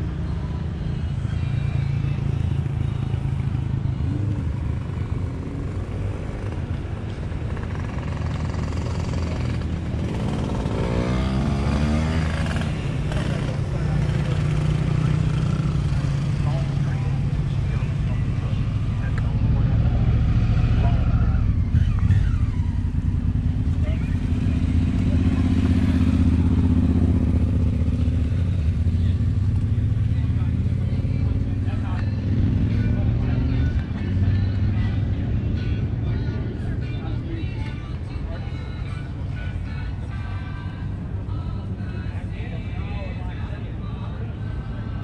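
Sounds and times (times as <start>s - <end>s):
motorcycle engines rumbling: 0.0s - 45.0s
engine revving higher: 7.8s - 16.3s.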